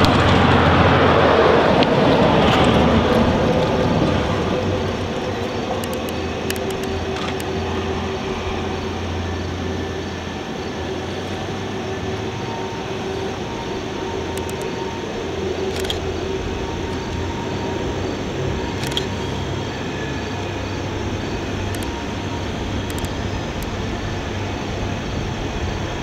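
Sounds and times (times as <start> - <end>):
diesel locomotive engine drone: 0.0 - 26.0
sharp clicks: 4.8 - 7.7, 14.2 - 14.9, 15.6 - 16.2, 18.7 - 19.2, 21.6 - 22.2, 22.8 - 23.8.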